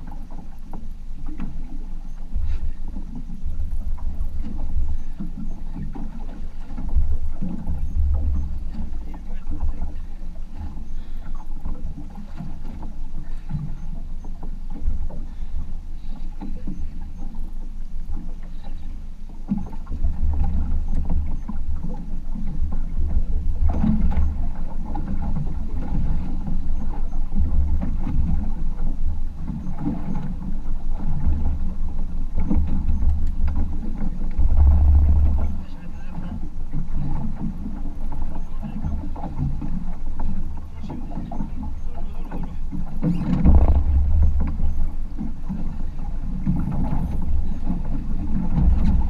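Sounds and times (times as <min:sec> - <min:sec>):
water sloshing against boat hull: 0:00.0 - 0:49.0
wind buffeting microphone: 0:19.7 - 0:49.0.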